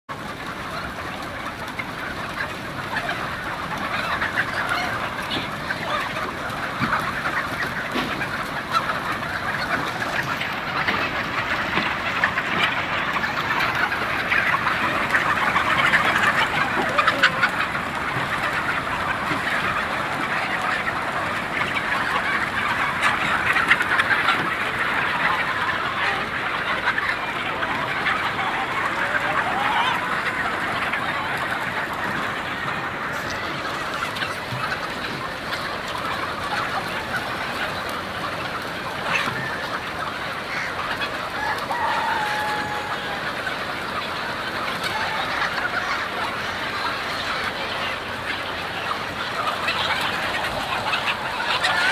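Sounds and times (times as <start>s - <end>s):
chickens clucking and calling: 0.0s - 51.9s.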